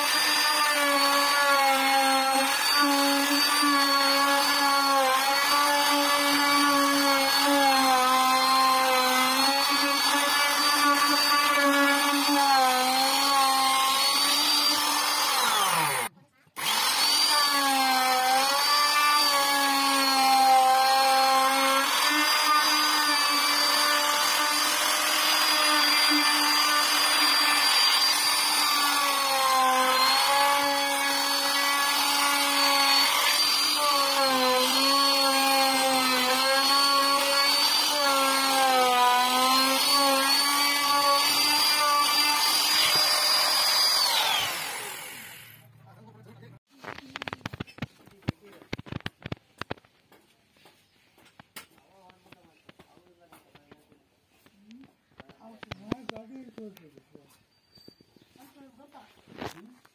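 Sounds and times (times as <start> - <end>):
electric router motor whine: 0.0 - 45.6.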